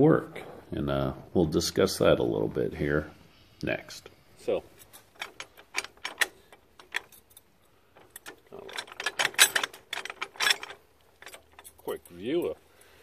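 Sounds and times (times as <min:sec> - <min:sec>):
metal bar clicking and rattling: 0:04.8 - 0:12.6.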